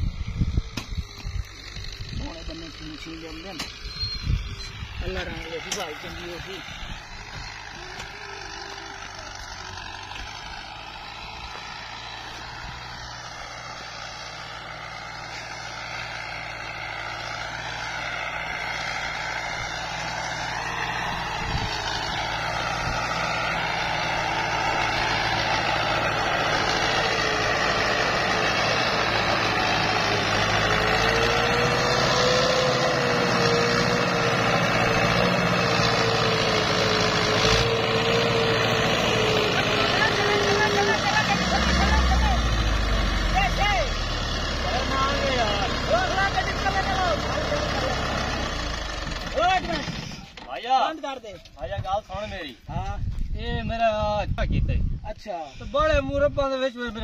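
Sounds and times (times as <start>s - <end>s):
tractor engine running: 0.0s - 51.8s.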